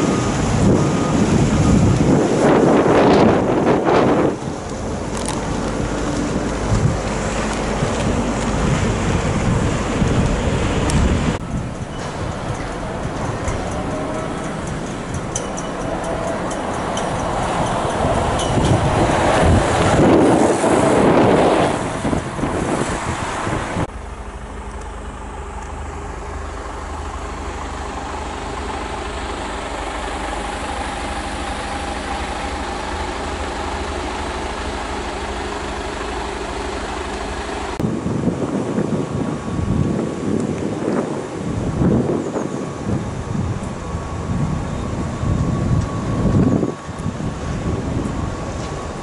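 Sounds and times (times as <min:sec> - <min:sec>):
truck diesel engine passing: 0:00.0 - 0:37.8
rough loud noise: 0:00.0 - 0:49.0
steady even drone: 0:23.4 - 0:40.2.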